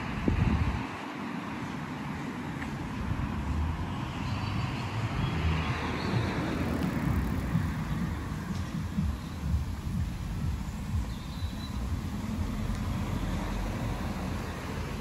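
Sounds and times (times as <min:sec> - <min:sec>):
wind on microphone: 0:00.0 - 0:01.1
distant road traffic: 0:00.0 - 0:15.0.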